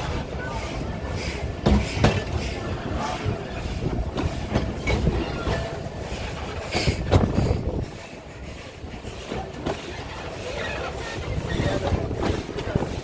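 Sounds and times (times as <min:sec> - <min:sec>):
train wagons rumbling: 0:00.0 - 0:13.0
wheels clacking over rail joints: 0:00.0 - 0:13.0.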